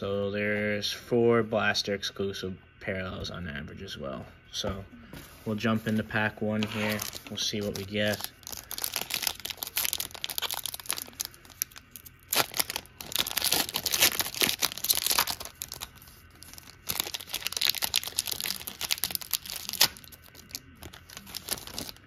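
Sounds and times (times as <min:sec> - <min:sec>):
foil wrapper tearing and crinkling: 0:06.6 - 0:22.0.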